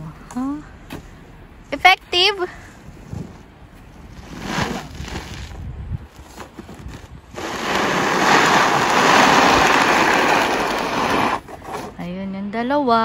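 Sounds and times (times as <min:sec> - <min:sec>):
snow shovel scraping asphalt: 0:03.0 - 0:12.0.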